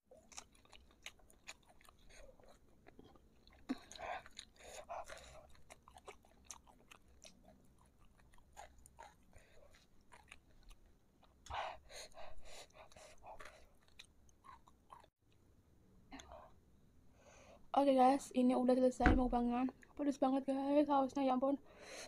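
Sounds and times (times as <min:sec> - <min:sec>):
close-up chewing: 0:00.1 - 0:15.4.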